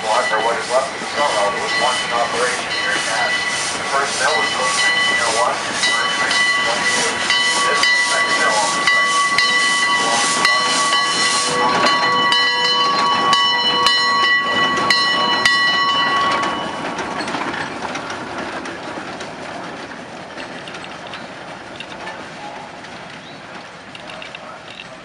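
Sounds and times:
steam hissing: 0:00.0 - 0:17.6
rhythmic train clanks: 0:00.0 - 0:25.0.

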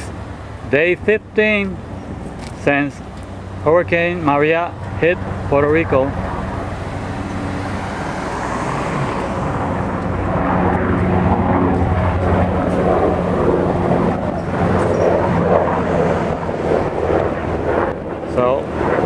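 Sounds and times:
engine drone: 0:00.0 - 0:19.0.

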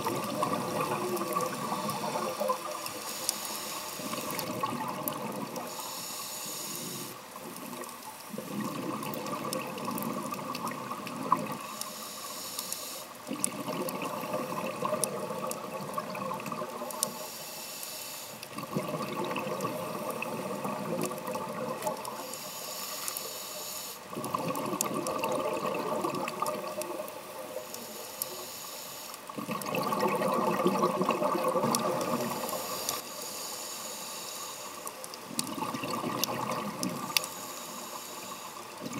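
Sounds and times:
exhaled bubbles rushing: 0:00.0 - 0:02.9, 0:04.1 - 0:05.6, 0:07.7 - 0:11.6, 0:13.3 - 0:16.8, 0:18.5 - 0:22.1, 0:24.1 - 0:27.1, 0:29.4 - 0:32.5, 0:35.4 - 0:37.2
regulator inhale hiss: 0:00.2 - 0:08.4, 0:11.5 - 0:13.3, 0:16.8 - 0:18.5, 0:22.0 - 0:24.2, 0:26.9 - 0:29.4, 0:32.0 - 0:35.2, 0:37.0 - 0:38.9.

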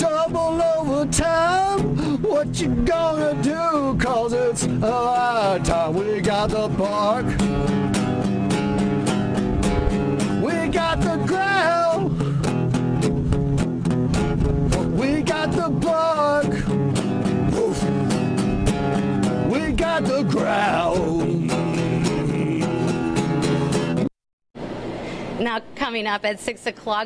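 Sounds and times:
man singing: 0:00.0 - 0:07.9, 0:10.2 - 0:12.2, 0:14.7 - 0:18.4, 0:19.2 - 0:23.8
acoustic guitar strumming: 0:00.0 - 0:24.1.

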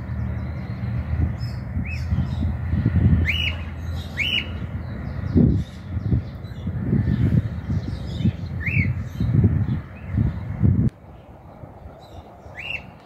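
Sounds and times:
cockatiel whistled calls: 0:04.2 - 0:04.5, 0:12.6 - 0:12.9.

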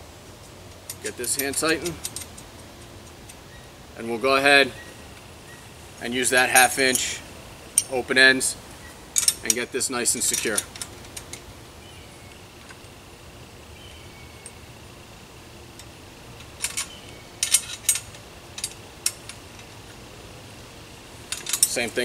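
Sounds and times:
wrench clinking on metal bolt: 0:00.9 - 0:02.4, 0:09.2 - 0:09.6, 0:10.2 - 0:11.4, 0:16.4 - 0:19.7, 0:21.3 - 0:22.0.

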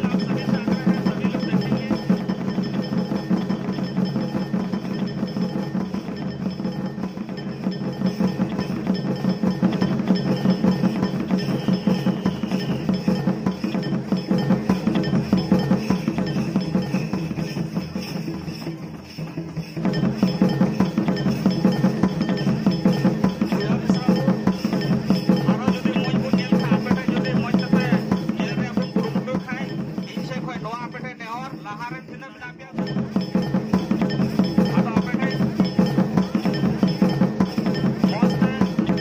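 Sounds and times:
hand drums beating fast: 0:00.0 - 0:39.0.

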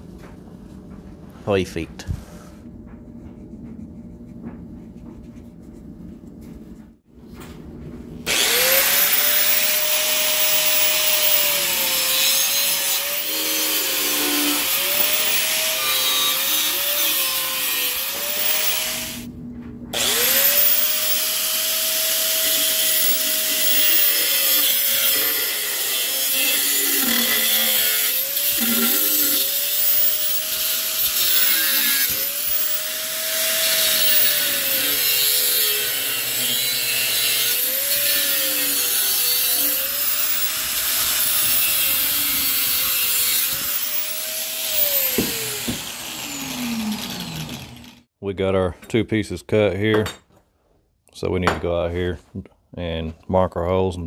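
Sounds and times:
angle grinder cutting steel: 0:08.3 - 0:19.3, 0:20.0 - 0:48.1.

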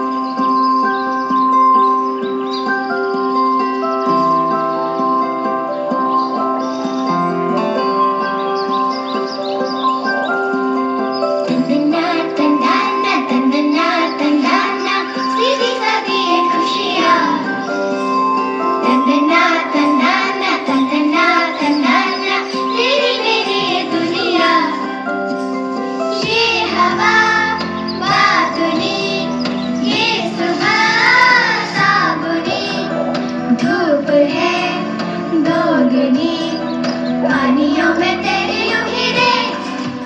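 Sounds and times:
held instrumental chords: 0:00.0 - 0:40.0
children's choir singing: 0:11.4 - 0:18.0, 0:18.7 - 0:25.1, 0:26.1 - 0:40.0.

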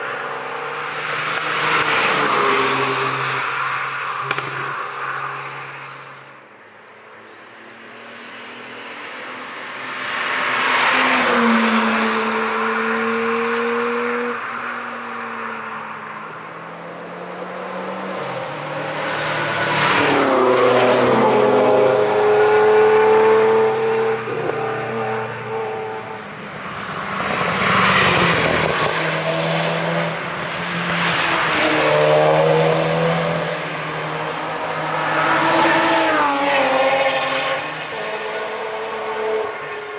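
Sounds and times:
race cars driving past: 0:00.0 - 0:06.5, 0:07.1 - 0:39.9.

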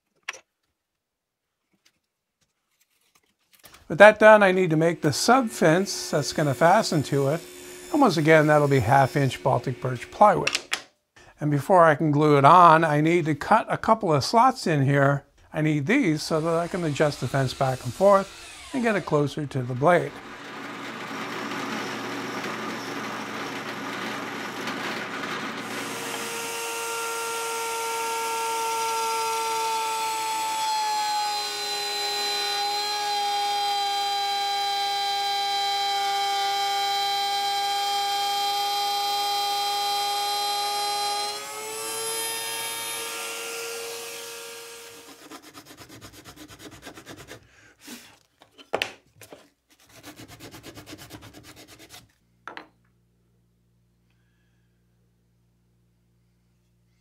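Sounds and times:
router motor whining: 0:05.0 - 0:10.3, 0:16.3 - 0:45.4
drill press boring into wood: 0:05.2 - 0:10.3, 0:16.2 - 0:45.3
sandpaper rubbing on wood: 0:45.0 - 0:48.1, 0:49.7 - 0:52.1.

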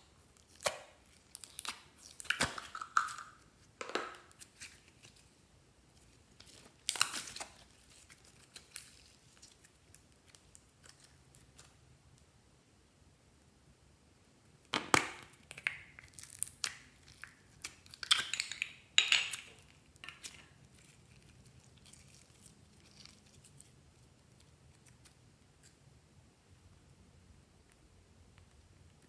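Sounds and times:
plastic capsule clicks and crackles: 0:18.0 - 0:20.5.

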